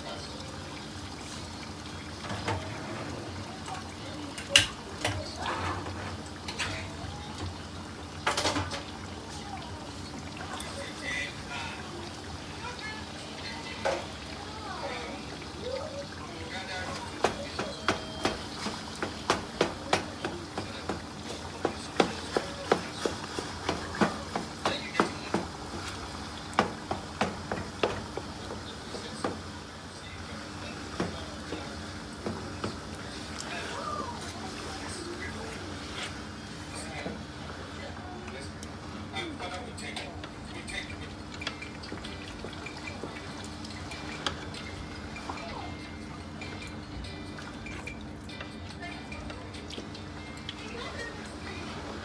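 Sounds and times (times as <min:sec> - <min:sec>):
stew stirred with wooden spoon: 0:08.8 - 0:52.0
wooden spoon knocking on metal pot: 0:17.1 - 0:25.8, 0:26.5 - 0:29.5.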